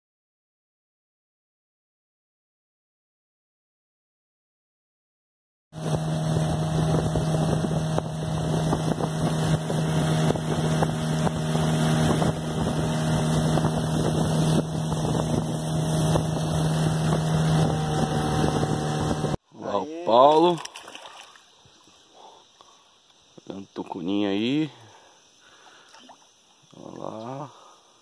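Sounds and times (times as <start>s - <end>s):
outboard motor running: 5.8s - 19.4s
wind buffeting microphone: 5.8s - 19.4s.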